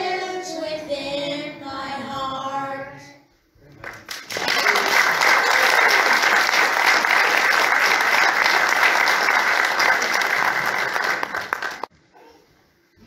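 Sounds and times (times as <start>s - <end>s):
congregation applauding: 3.8s - 11.9s.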